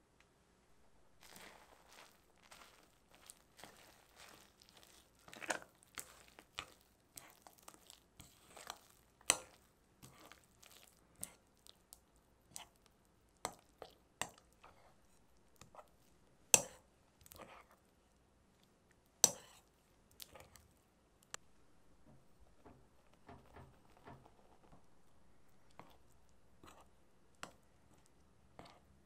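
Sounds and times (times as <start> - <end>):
kitchen taps and clicks: 22.0 - 24.8.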